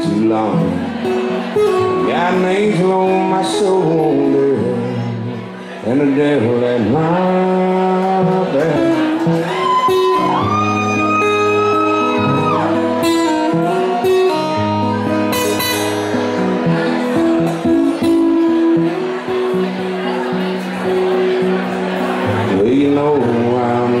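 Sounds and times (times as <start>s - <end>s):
man singing: 0.0s - 1.1s, 1.7s - 10.5s, 22.3s - 24.0s
acoustic guitar strumming: 0.0s - 24.0s.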